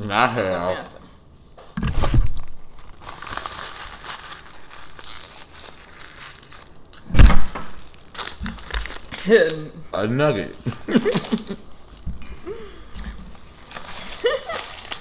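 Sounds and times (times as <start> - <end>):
paper wrapper crinkling: 2.2 - 9.6, 13.3 - 15.0.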